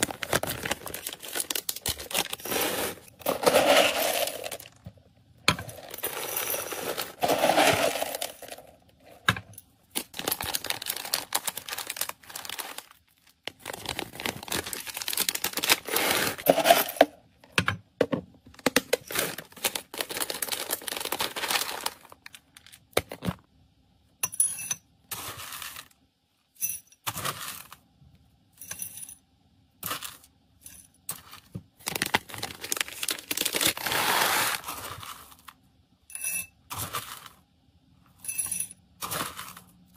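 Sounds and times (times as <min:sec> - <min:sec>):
plastic bag crinkling: 0:00.0 - 0:04.9, 0:05.7 - 0:08.7, 0:09.9 - 0:17.0, 0:18.6 - 0:22.9, 0:31.8 - 0:35.5
kibble rattling into bowl: 0:00.2 - 0:04.8, 0:05.6 - 0:08.7.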